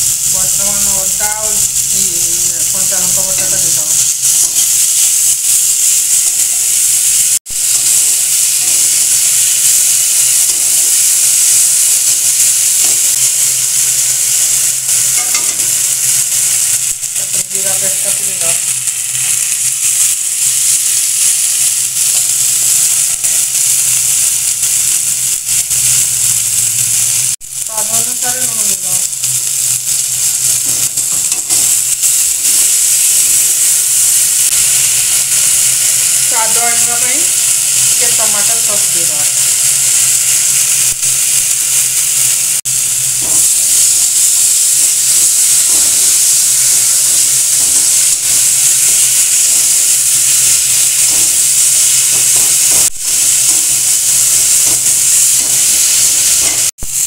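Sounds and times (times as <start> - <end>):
food sizzling in hot oil: 0.0 - 57.0
spatula stirring and scraping: 10.4 - 22.3, 28.4 - 41.4.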